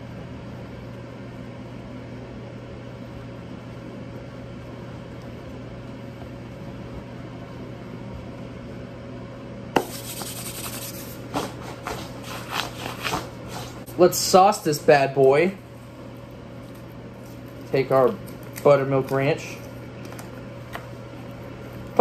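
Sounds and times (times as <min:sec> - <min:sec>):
steady low hum: 0:00.0 - 0:22.0
hands rubbing dough: 0:09.8 - 0:14.0.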